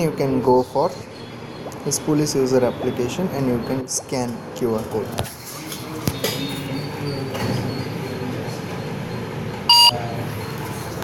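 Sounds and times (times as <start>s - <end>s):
short electronic beep: 9.7s - 10.0s.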